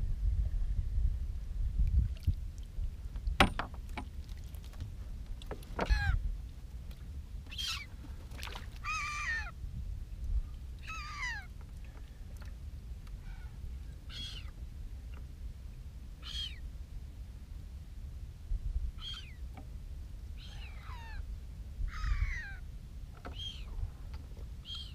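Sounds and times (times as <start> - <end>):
steady low rumble: 0.0 - 24.9
bird crying: 5.8 - 6.2, 7.5 - 7.9, 8.8 - 9.6, 10.8 - 11.5, 13.2 - 14.6, 16.2 - 16.6, 19.0 - 19.4, 20.4 - 21.3, 21.9 - 22.6, 23.3 - 23.7, 24.6 - 24.9.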